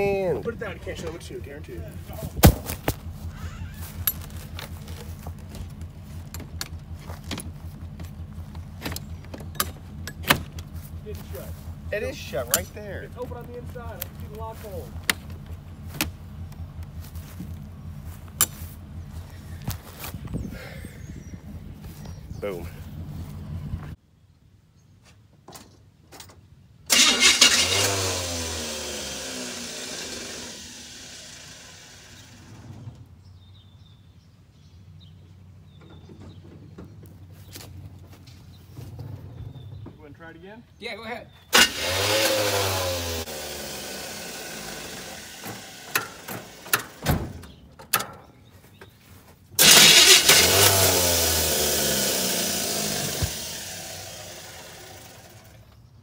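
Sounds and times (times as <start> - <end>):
engine cranking and firing: 0.0 - 20.1, 26.9 - 33.2, 41.5 - 48.4, 49.6 - 56.0
metallic door latch clicks and rattles: 46.0 - 48.3.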